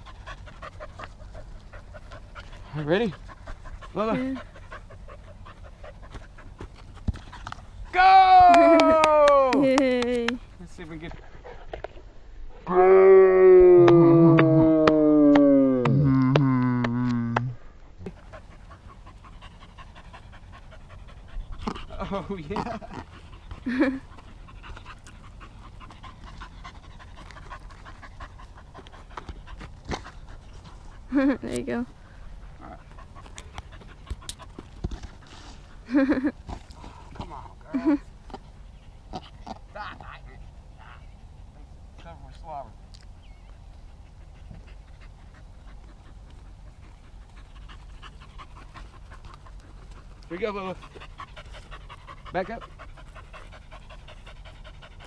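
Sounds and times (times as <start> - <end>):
dog panting: 0.0 - 7.7, 18.1 - 40.8, 43.4 - 55.0
person shouting: 7.9 - 9.7.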